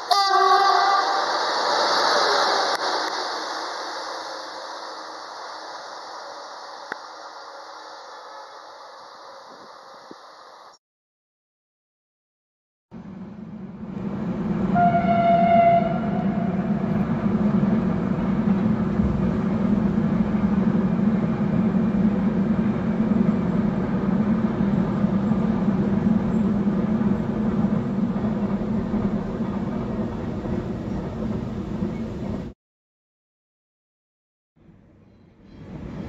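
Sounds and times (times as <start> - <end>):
train horn: 0.0 - 2.7, 14.7 - 17.0
train wheels rumbling on rails: 0.0 - 10.3, 13.0 - 32.6, 35.1 - 36.0.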